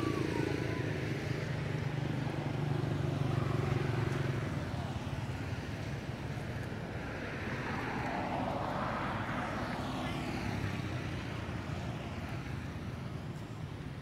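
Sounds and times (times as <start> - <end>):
passing engine: 0.0 - 14.0.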